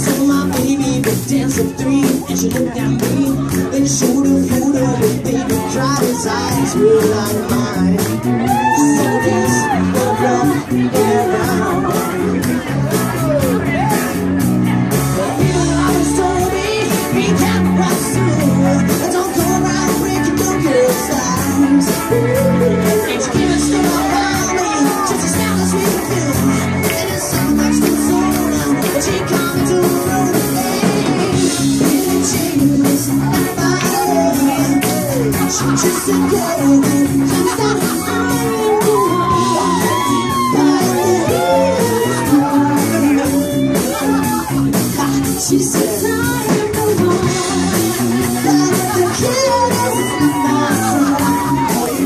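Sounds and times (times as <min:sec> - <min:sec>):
person singing into a microphone: 0:00.0 - 0:14.1, 0:15.1 - 0:52.0
bass guitar: 0:00.0 - 0:52.0
live band playing upbeat song: 0:00.0 - 0:52.0
steady drum beat: 0:00.0 - 0:52.0.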